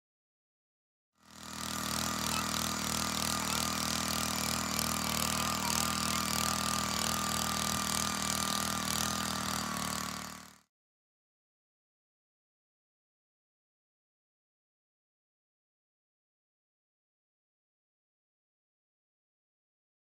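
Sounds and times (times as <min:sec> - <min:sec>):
earth auger engine drilling: 0:01.2 - 0:10.7.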